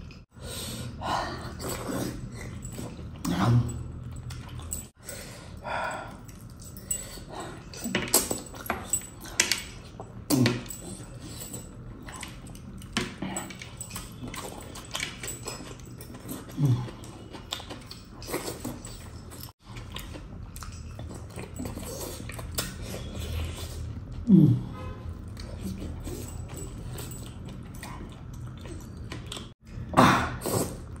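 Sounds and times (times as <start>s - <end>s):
chewing and mouth-smacking: 1.5s - 5.0s, 6.0s - 24.3s, 25.0s - 29.6s.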